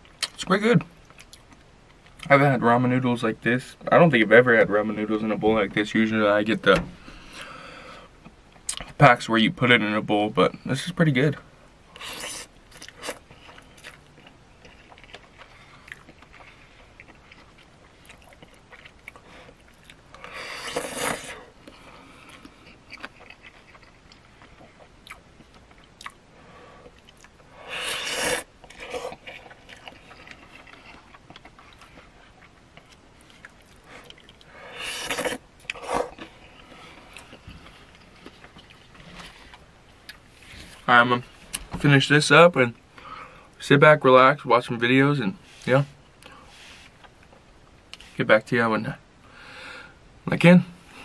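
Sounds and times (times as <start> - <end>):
quiet chewing: 11.9 - 40.9
person slurping noodles: 20.3 - 21.5, 27.6 - 29.2, 34.7 - 36.2.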